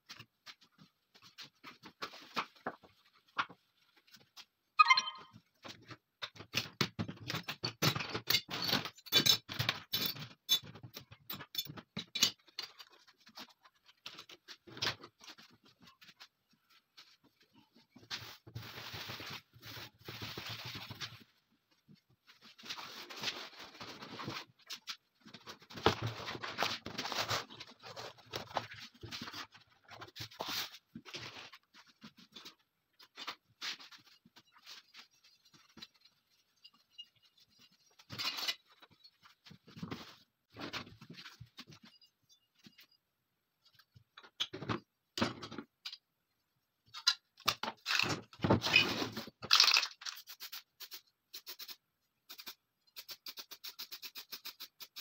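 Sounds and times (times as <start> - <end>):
small metal parts clattering: 47.8 - 50.5.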